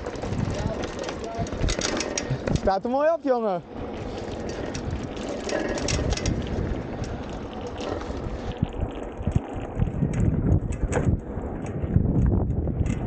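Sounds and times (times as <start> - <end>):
tyres rolling over gravel: 0.0 - 12.0
wind buffeting microphone: 0.0 - 13.0.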